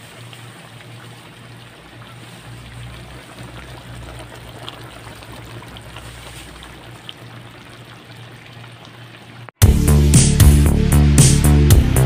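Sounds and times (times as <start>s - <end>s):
broth simmering in a pan: 0.0s - 9.6s.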